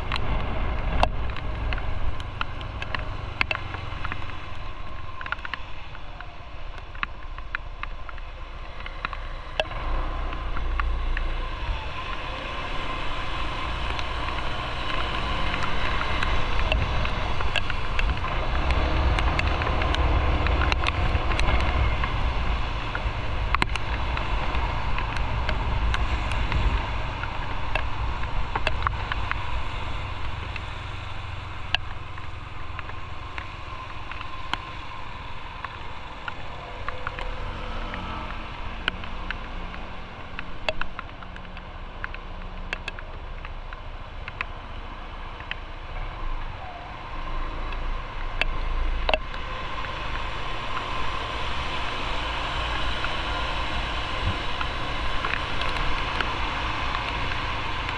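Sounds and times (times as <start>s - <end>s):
sharp clicks: 0.0s - 34.9s, 35.6s - 45.8s.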